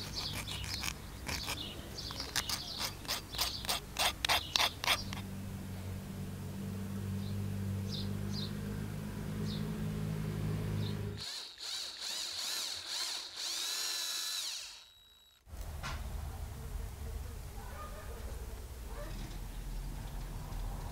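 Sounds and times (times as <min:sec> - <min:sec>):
electric drill whining through metal: 0:11.2 - 0:15.5.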